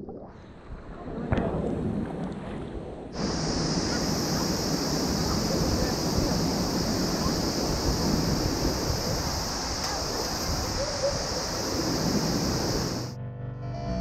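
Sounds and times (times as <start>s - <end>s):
wind on microphone: 0.0s - 13.2s
waterfall rushing water: 3.2s - 13.1s.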